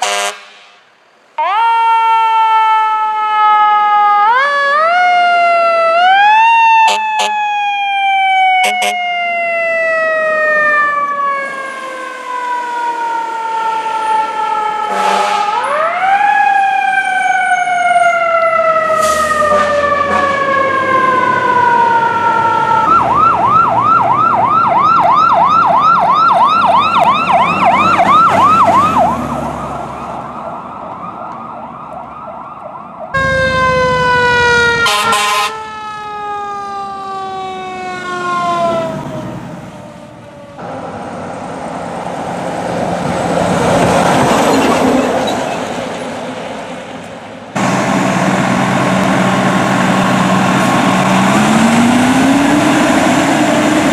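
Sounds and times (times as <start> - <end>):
fire truck horn blasts: 0.0 - 0.9, 6.8 - 7.5, 8.5 - 9.2, 14.8 - 15.9, 18.9 - 20.7, 33.2 - 35.8
electronic yelp siren: 1.4 - 41.0
siren winding down: 1.4 - 45.6, 47.6 - 53.9.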